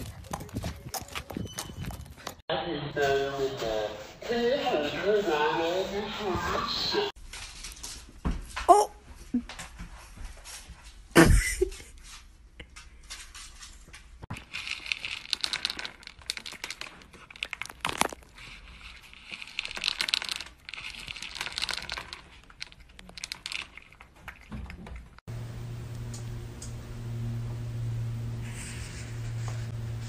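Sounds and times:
cat crunching dry kibble: 14.3 - 24.9.

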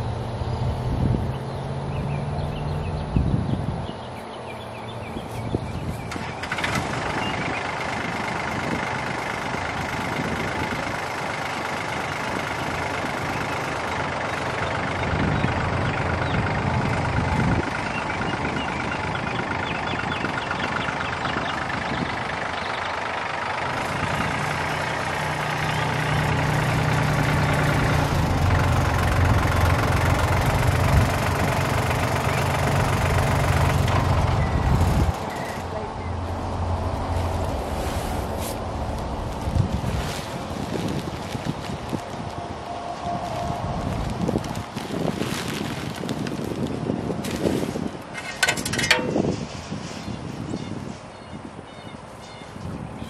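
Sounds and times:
tractor engine running: 0.0 - 50.4.

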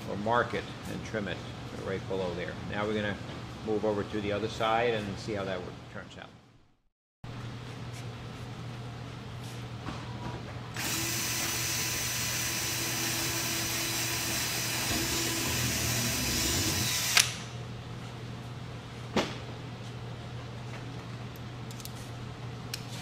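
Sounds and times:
cordless drill whining: 10.8 - 17.4.

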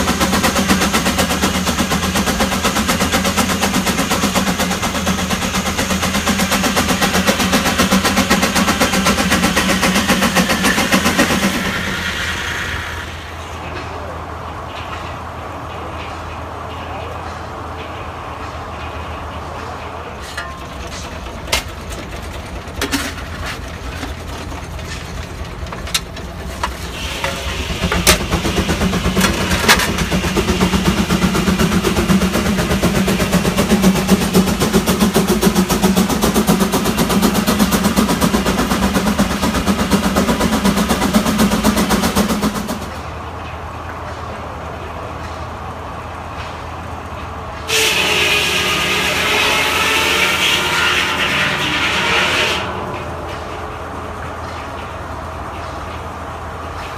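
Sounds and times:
steam engine driving sawmill: 0.0 - 56.9
sharp metal clanks: 20.2 - 22.1.

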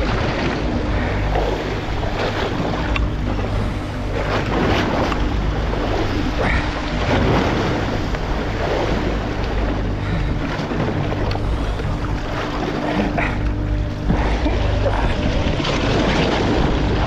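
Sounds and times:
boat machinery hum: 0.0 - 17.0
sea water splashing against hull: 0.0 - 17.0
wind buffeting microphone: 0.0 - 17.0.

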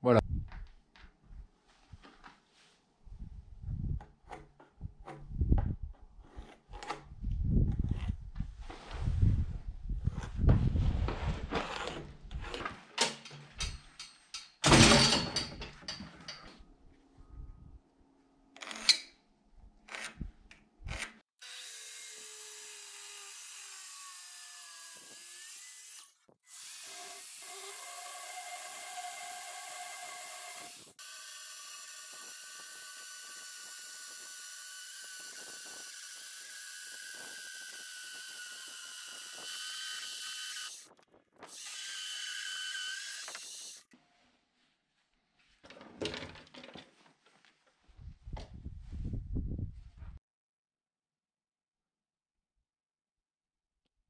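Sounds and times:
circular saw cutting wood: 21.4 - 43.9.

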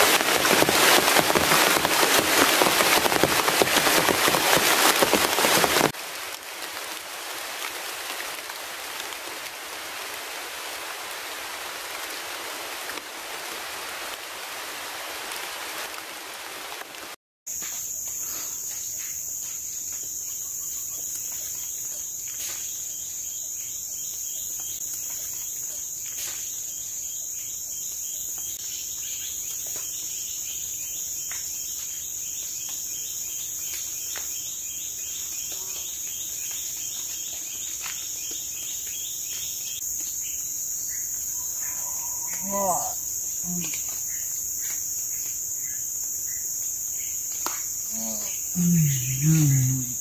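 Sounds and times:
high-pitched insect chorus: 17.5 - 50.0
rapid ticking insect call: 17.5 - 50.0
short bird calls: 41.3 - 43.7.

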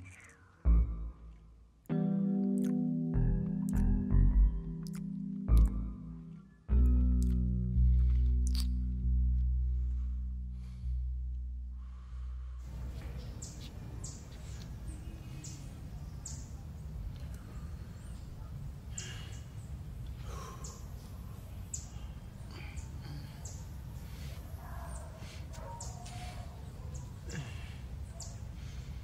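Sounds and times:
steady low rumble: 3.3 - 13.0
birds chirping: 12.7 - 29.0.

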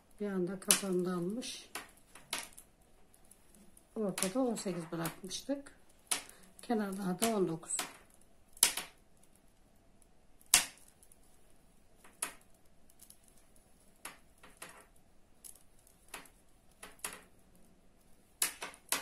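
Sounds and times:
knitting needles clicking: 0.1 - 9.4, 12.0 - 17.7, 18.3 - 19.0.

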